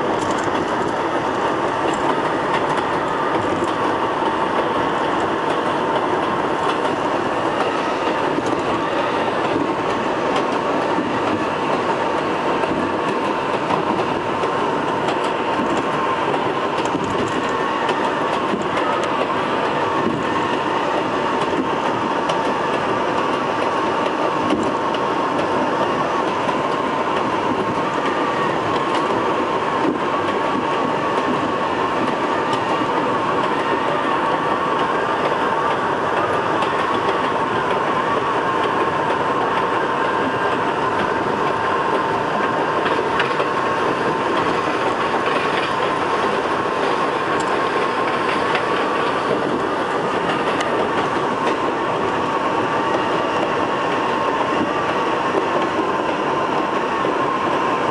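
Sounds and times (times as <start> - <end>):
subway train running on track: 0.0 - 57.9.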